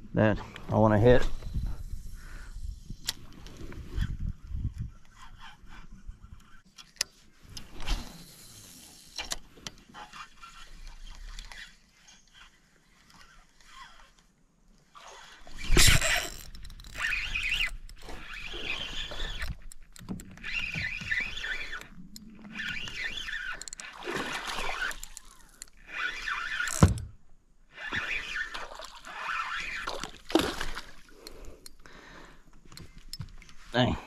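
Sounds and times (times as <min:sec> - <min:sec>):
fishing reel whirring rattle: 0:07.7 - 0:14.2, 0:15.1 - 0:27.0, 0:27.7 - 0:30.2.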